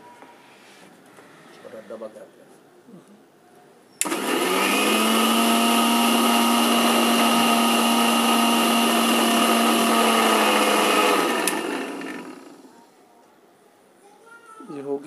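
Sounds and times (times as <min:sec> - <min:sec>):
mixer grinder motor whine: 0:04.0 - 0:12.7.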